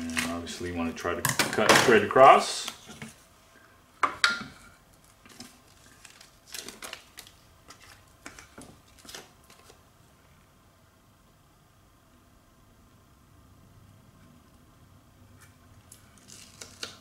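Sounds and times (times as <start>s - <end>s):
velcro tape handled: 5.0s - 9.8s, 15.8s - 17.0s.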